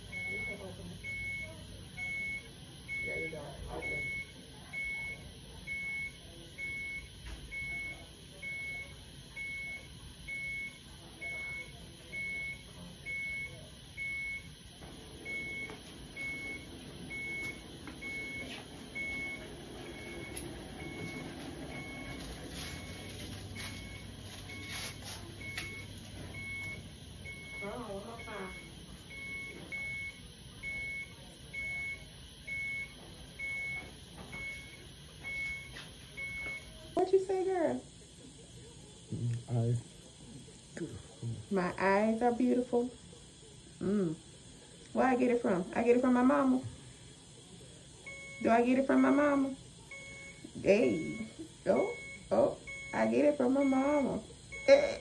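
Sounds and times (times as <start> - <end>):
high single-tone alarm beep: 0.1 - 14.5, 15.2 - 36.8, 48.1 - 55.0.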